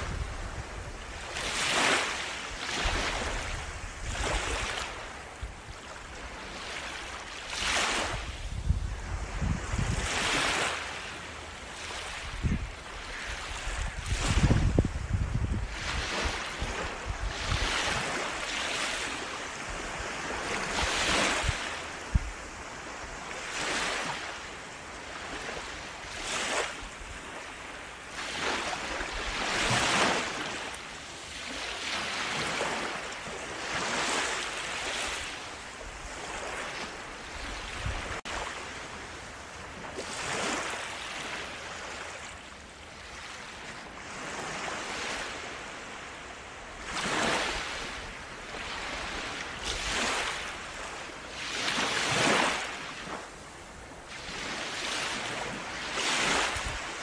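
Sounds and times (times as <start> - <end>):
small waves washing up beach: 0.0 - 57.0.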